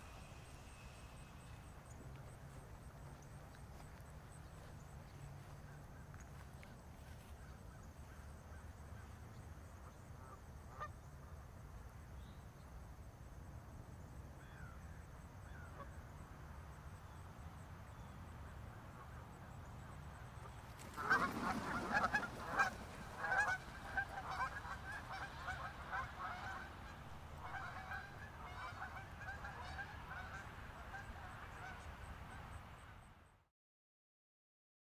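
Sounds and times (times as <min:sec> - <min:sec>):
low steady background hum: 0:00.0 - 0:33.4
wingbeats of birds taking off: 0:19.0 - 0:32.4
geese honking: 0:20.4 - 0:32.4.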